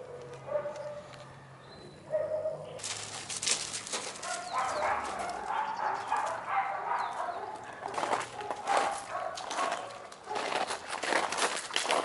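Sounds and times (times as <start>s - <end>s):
dogs barking and yelping: 0.0s - 3.0s, 4.0s - 10.7s
rough scuffling noise: 2.8s - 12.0s.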